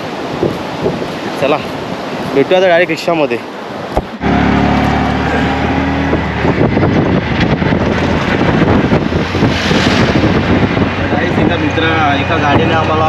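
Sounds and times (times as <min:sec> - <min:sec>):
wind buffeting microphone: 0:00.0 - 0:13.0
auto-rickshaw engine humming: 0:04.0 - 0:13.0.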